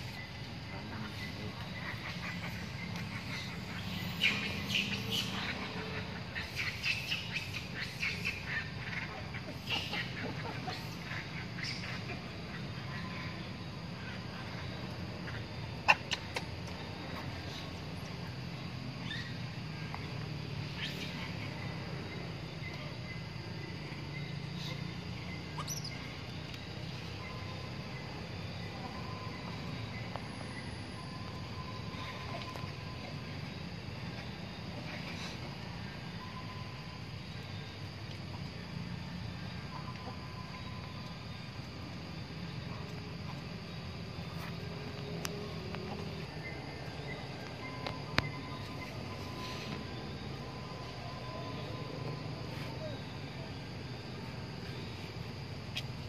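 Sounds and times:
insects hissing: 0.0s - 56.0s
steady low hum: 0.0s - 56.0s
bird chirps: 1.1s - 8.7s, 19.0s - 19.4s, 24.0s - 26.2s.

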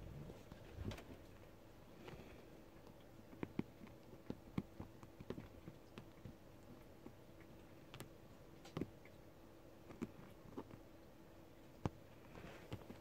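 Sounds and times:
kittens' paws tapping upholstery: 11.8s - 13.0s.

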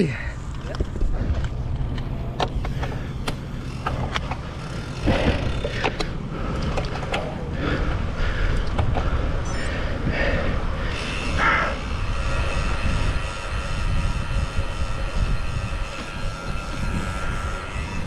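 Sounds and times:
bike clicks and knocks: 0.4s - 9.6s
wind on microphone: 6.9s - 18.0s.

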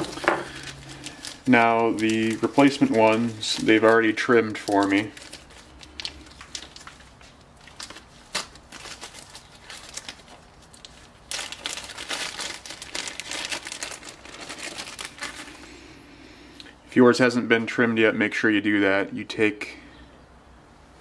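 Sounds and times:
material crinkling by hand: 0.0s - 15.8s.

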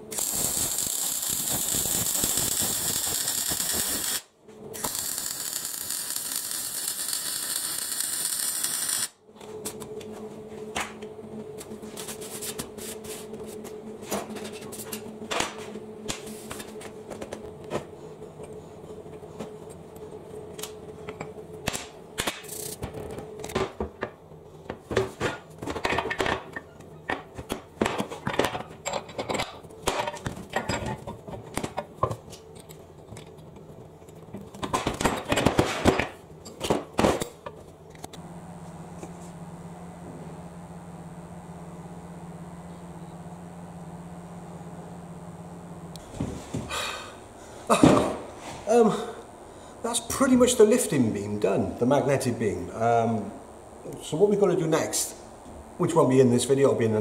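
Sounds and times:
arc welding hiss: 0.0s - 9.2s, 22.3s - 22.8s, 38.6s - 57.0s
low hum: 37.5s - 57.0s.

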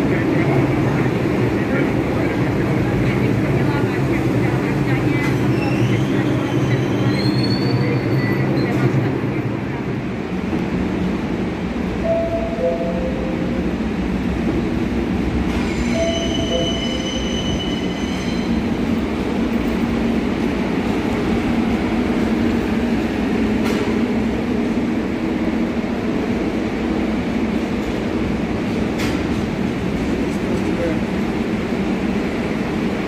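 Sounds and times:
subway train rumbling: 0.0s - 33.0s
train wheels squealing: 5.5s - 8.8s, 15.6s - 18.6s.

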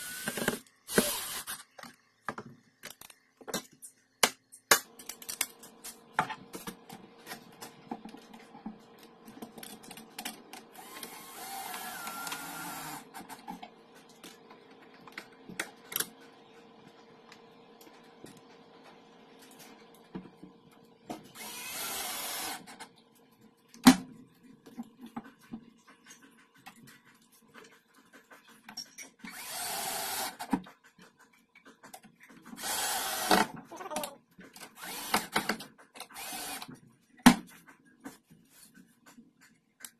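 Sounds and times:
cordless drill driving screws: 0.0s - 1.6s, 10.8s - 13.1s, 21.4s - 22.7s, 29.3s - 30.5s, 32.6s - 33.5s, 34.8s - 36.7s.

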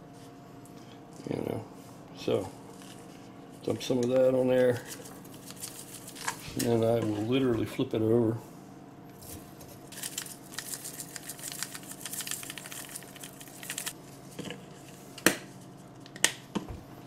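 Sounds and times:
shaker bottle rattling: 9.9s - 14.0s.

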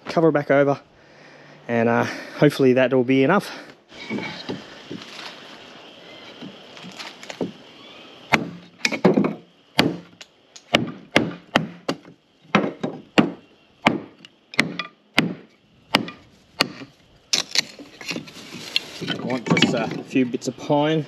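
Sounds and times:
blade chopping wood: 8.3s - 18.2s.

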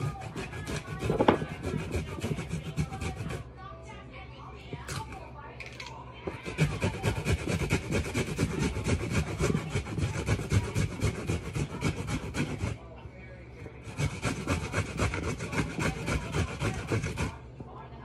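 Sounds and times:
ginger grated on metal grater: 0.0s - 3.4s, 6.3s - 12.8s, 13.8s - 17.4s.

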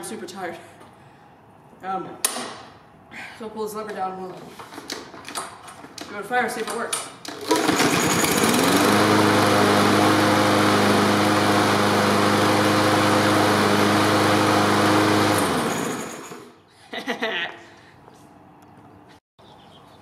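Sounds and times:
lawn mower pull-start: 6.6s - 16.6s
lawn mower engine running: 7.3s - 16.5s.

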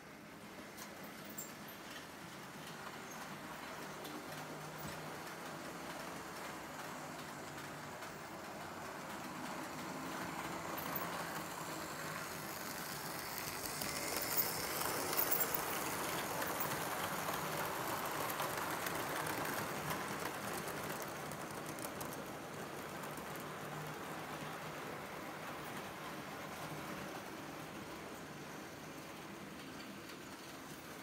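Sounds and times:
wheels rumbling on track: 1.4s - 30.9s
model train motor whirring: 9.6s - 24.4s.

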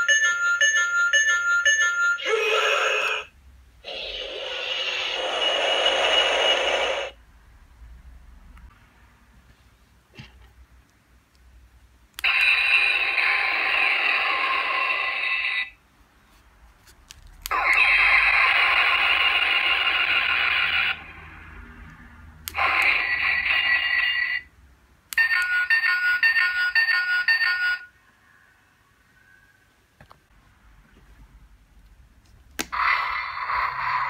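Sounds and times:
toy electronic sound effects: 0.0s - 7.2s, 12.2s - 15.8s, 17.5s - 21.0s, 22.5s - 24.5s.

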